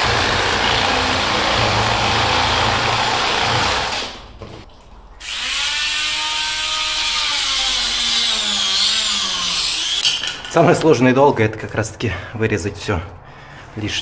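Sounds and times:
power tool cutting pipe: 0:00.0 - 0:04.2, 0:05.2 - 0:10.0.

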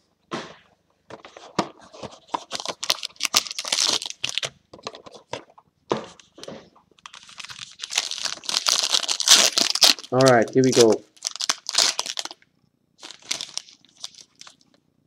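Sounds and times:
foil wrapper crinkling: 0:02.4 - 0:04.5, 0:07.0 - 0:12.4, 0:13.0 - 0:14.7.

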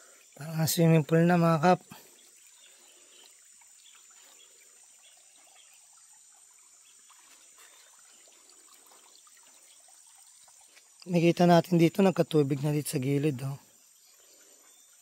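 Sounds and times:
water trickling into tank: 0:00.0 - 0:15.0.

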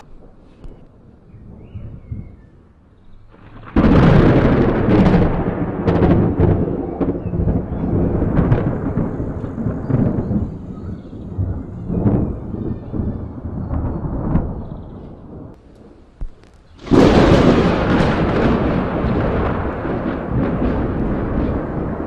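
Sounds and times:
thunder crashing and rumbling: 0:00.0 - 0:22.0
sharp thunder cracks: 0:03.2 - 0:22.0.

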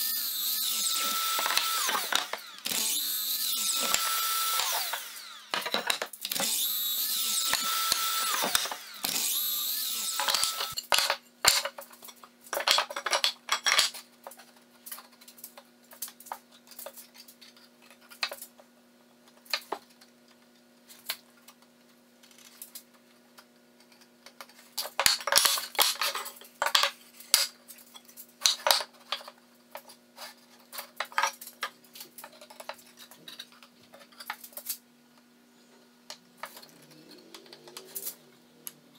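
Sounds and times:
mitre saw cutting wood: 0:00.0 - 0:05.6, 0:06.3 - 0:10.8.

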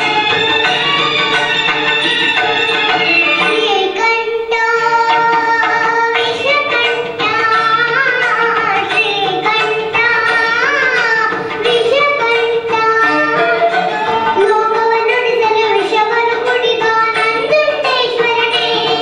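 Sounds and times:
girl singing into a microphone: 0:03.4 - 0:19.0.

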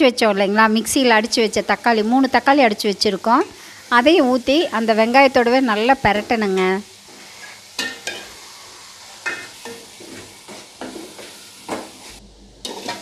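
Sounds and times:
food sizzling in oil: 0:00.0 - 0:13.0
spoon clinking and scraping pan: 0:07.3 - 0:08.4, 0:09.2 - 0:13.0.

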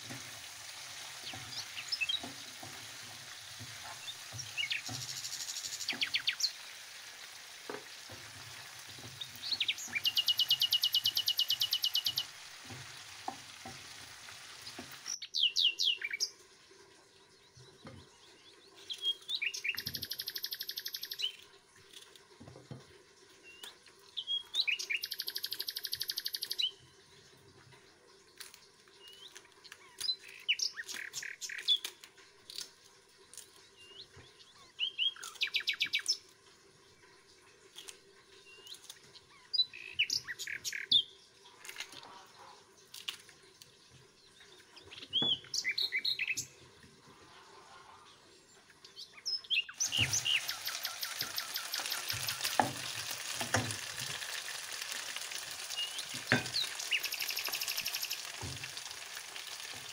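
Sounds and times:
meat and potatoes sizzling in a pan: 0:00.0 - 0:15.2, 0:49.8 - 0:59.9
songbird chirping and trilling: 0:03.9 - 0:06.6, 0:09.1 - 0:12.3, 0:15.1 - 0:16.4, 0:17.0 - 0:21.6, 0:23.4 - 0:32.0, 0:33.3 - 0:43.0, 0:43.6 - 0:52.5, 0:55.7 - 0:58.4.

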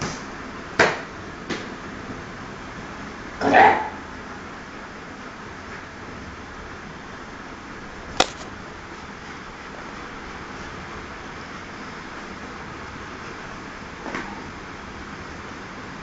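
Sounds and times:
sharp knock: 0:08.2 - 0:08.5.

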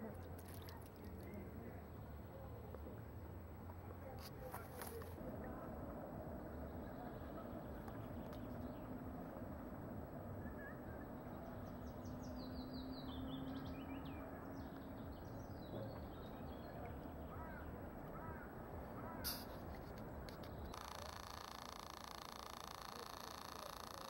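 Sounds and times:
songbird singing: 0:00.0 - 0:24.0
short bird calls: 0:17.2 - 0:19.8, 0:20.4 - 0:24.0.

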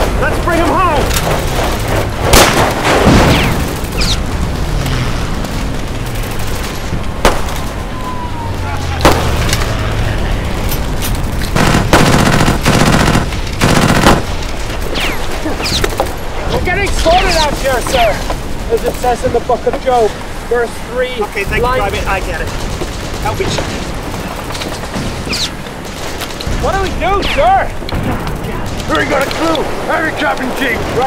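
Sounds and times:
single gunshots and bangs: 0:01.2 - 0:04.2, 0:06.3 - 0:07.8, 0:08.9 - 0:09.7, 0:11.5 - 0:14.4
machine-gun bursts: 0:11.5 - 0:14.4.

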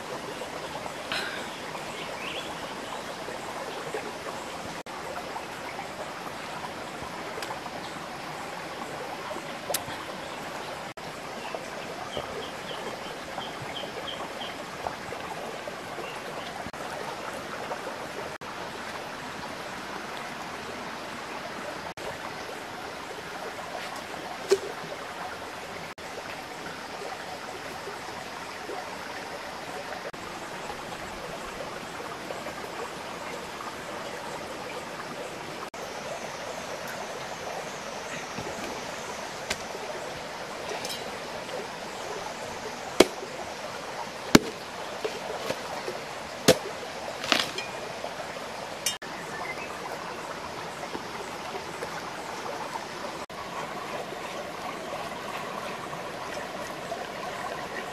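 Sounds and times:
stream rushing over rocks: 0:00.0 - 0:57.9.

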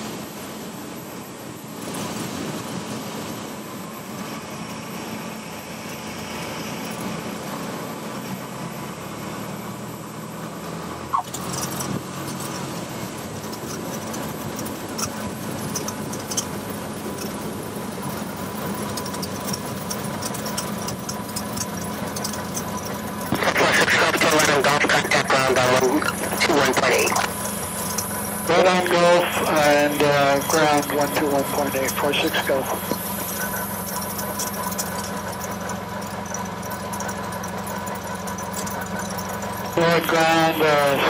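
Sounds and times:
small plane engine and propeller: 0:00.0 - 0:41.0.

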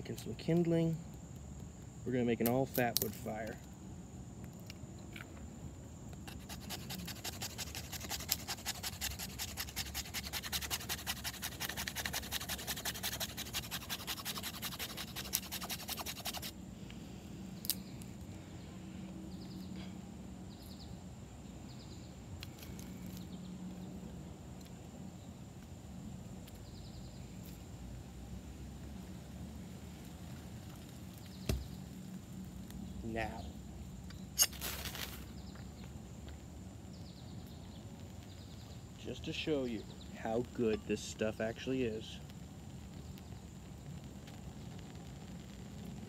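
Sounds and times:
light taps and rustles of sticks: 0:01.3 - 0:03.7, 0:30.0 - 0:32.8
knife scraping wood: 0:06.2 - 0:16.5.

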